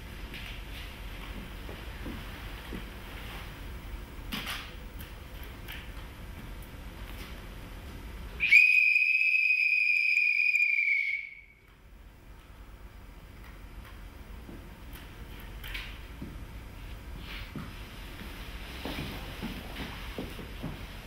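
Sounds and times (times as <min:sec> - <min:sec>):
high steady whistle tone: 0:08.4 - 0:11.8.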